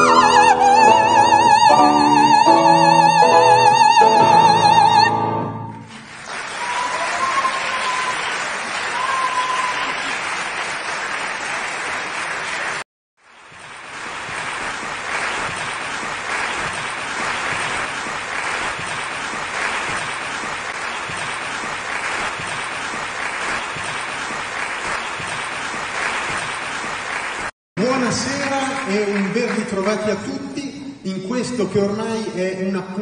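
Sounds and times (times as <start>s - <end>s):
audience applauding: 5.7s - 30.3s.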